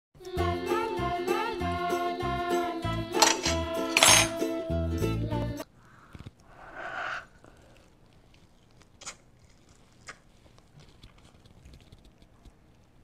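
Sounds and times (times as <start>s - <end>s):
muffled biting mouth sound: 5.6s - 13.0s
person chewing food: 5.6s - 13.0s.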